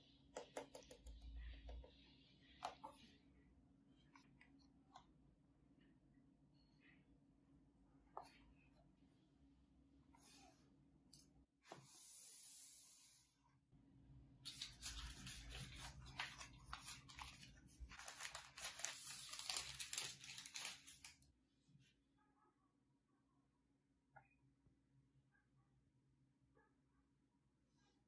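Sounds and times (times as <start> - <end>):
wrapping paper crinkling: 14.5 - 21.2.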